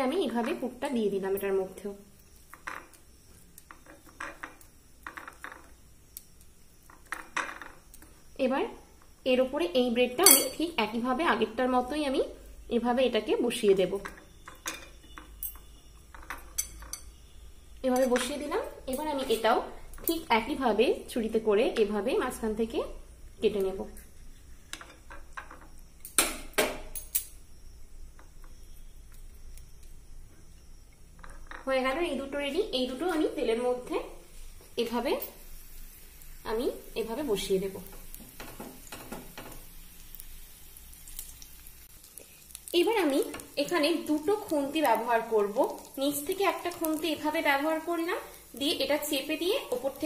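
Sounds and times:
knife clinking on ceramic plate: 10.2s - 10.6s.

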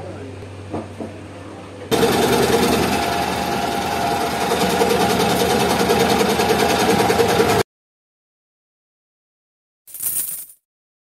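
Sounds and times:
scroll saw cutting wood: 1.9s - 7.6s.

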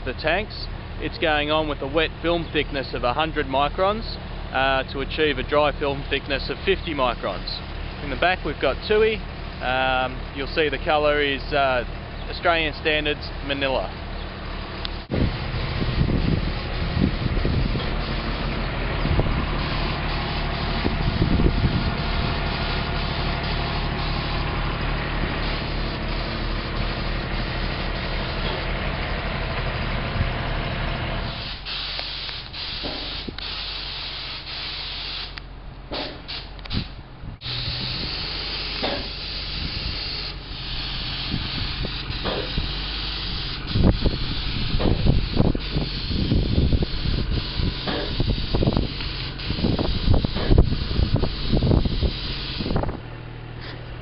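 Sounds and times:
paint spray gun hissing: 19.5s - 24.5s, 25.4s - 28.4s, 31.3s - 35.4s, 36.0s - 52.8s
motor humming: 36.5s - 54.0s.

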